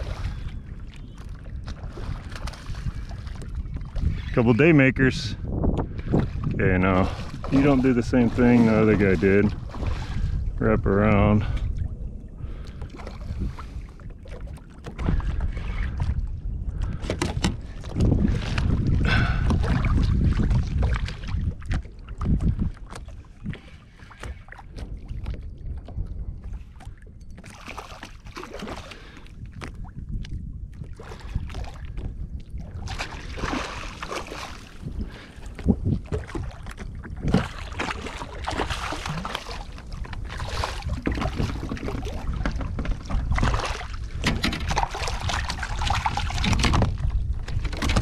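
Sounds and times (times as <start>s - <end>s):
wind rumble on microphone: 0.0s - 48.0s
fish thrashing and splashing: 27.4s - 29.7s, 32.6s - 48.0s.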